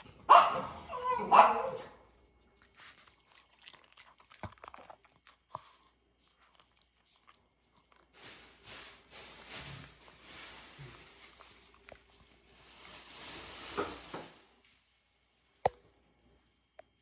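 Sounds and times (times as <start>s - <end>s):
dog chewing food crunchily: 2.3s - 8.2s
soft rustle: 7.2s - 15.4s.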